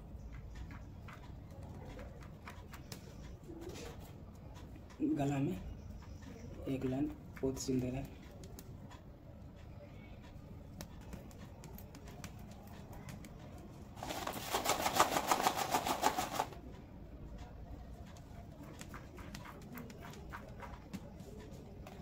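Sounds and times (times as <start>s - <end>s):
needle clicking through fabric: 9.6s - 16.6s
rapid rustling: 10.8s - 16.6s.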